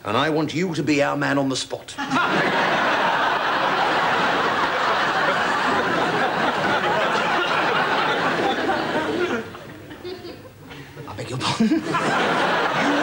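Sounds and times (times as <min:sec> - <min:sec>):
studio audience laughing: 0:02.0 - 0:10.2, 0:11.4 - 0:13.0.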